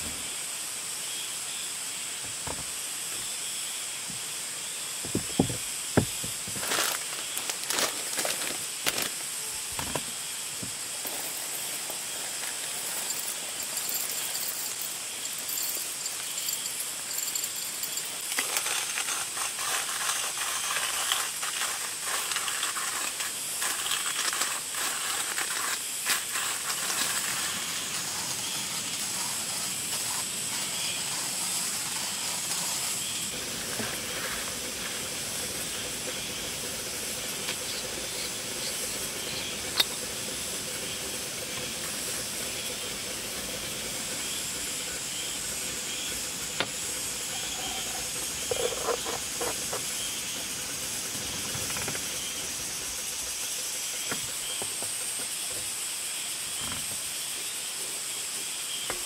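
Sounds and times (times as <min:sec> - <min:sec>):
hand coffee grinder crunching: 0:05.1 - 0:10.0, 0:11.0 - 0:35.8
gas stove burner hissing: 0:22.5 - 0:48.7.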